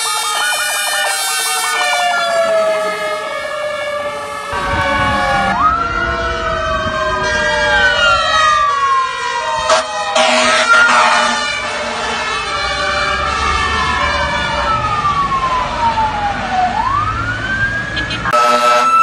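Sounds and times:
fire truck sirens wailing: 0.0s - 19.0s
truck engine rumbling: 0.0s - 19.0s.

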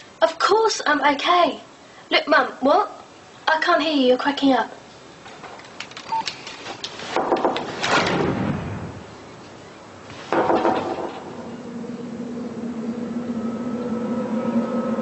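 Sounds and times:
steady low hum: 8.0s - 15.0s.

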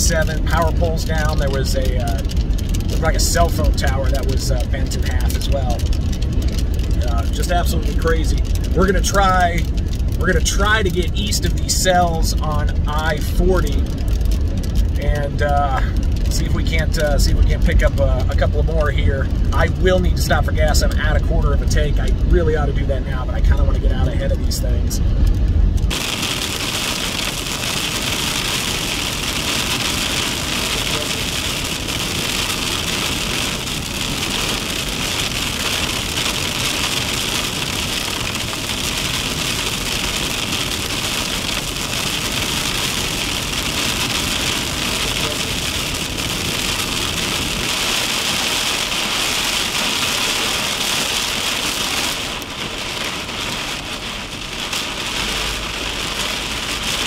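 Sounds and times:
rain pelting windshield: 0.0s - 57.0s
tyre hiss on wet road: 25.9s - 57.0s.

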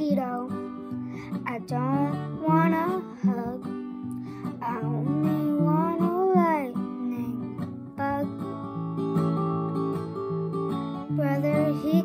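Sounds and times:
strummed acoustic guitar: 0.0s - 12.0s
girl singing long note: 1.4s - 3.7s, 4.6s - 8.5s.

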